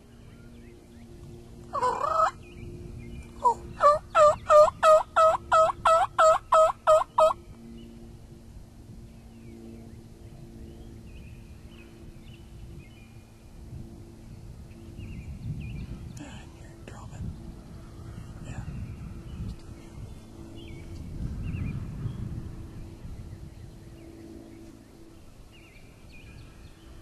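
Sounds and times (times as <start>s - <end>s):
turkey yelping: 1.8s - 2.4s, 3.4s - 7.4s.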